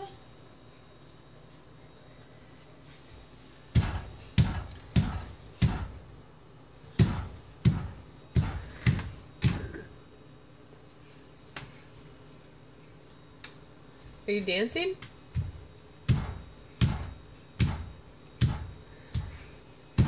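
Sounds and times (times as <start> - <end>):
toddler's feet thumping on tile: 3.7 - 6.0, 7.0 - 9.8, 15.0 - 20.0.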